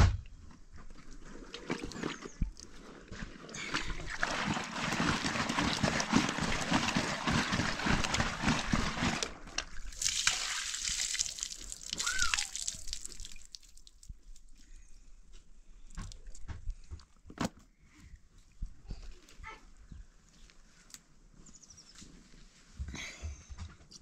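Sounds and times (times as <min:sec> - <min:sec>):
water pouring onto the ground: 0:03.6 - 0:14.4
water splashing into a bag: 0:03.7 - 0:14.2.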